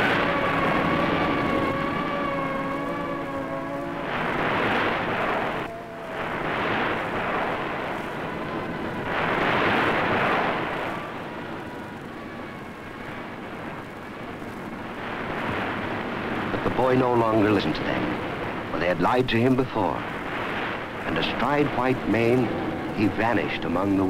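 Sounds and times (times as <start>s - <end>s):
sea waves surging: 0.0s - 24.0s.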